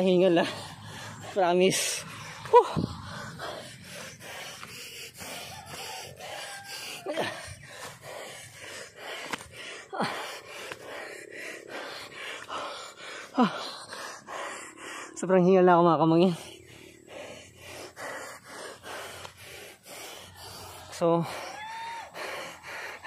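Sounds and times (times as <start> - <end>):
person panting hard: 0.0 - 23.0.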